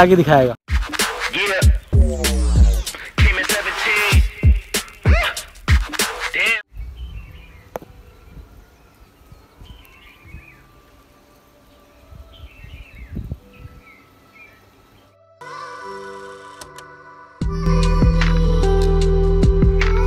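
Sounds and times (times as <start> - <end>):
birds chirping: 6.2 - 15.2.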